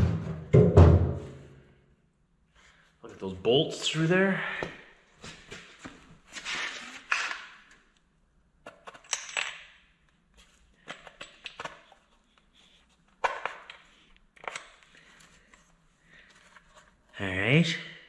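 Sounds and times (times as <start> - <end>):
bolts and washers clinking: 8.6 - 12.5, 13.2 - 15.3.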